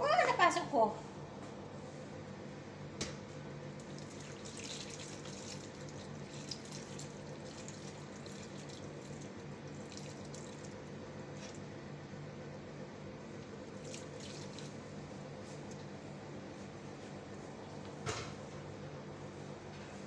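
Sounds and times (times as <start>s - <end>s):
steady low hum: 0.0s - 20.0s
pot bubbling and crackling: 3.7s - 11.9s, 13.2s - 16.0s.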